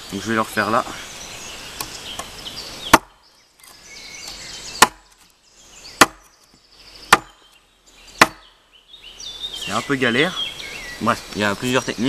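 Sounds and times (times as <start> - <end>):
hatchet chopping wood: 1.8 - 5.3, 6.0 - 6.5, 7.1 - 7.5, 8.1 - 8.5.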